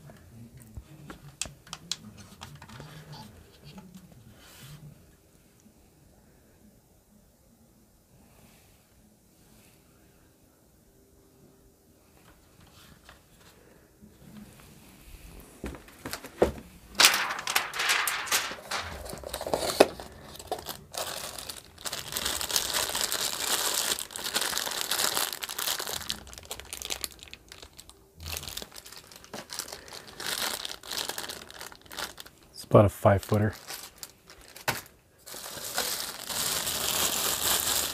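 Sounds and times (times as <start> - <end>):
plastic bag crinkling: 15.6 - 37.9.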